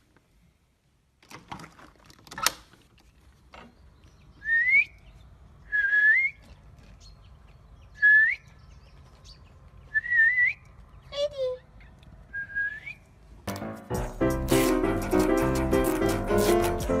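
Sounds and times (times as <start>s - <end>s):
person whistling: 4.4s - 4.9s, 5.7s - 6.4s, 10.0s - 10.6s, 12.3s - 13.0s.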